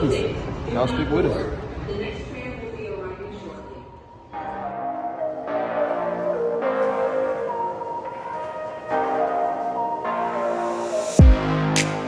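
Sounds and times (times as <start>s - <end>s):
sustained music chords: 9.0s - 12.0s.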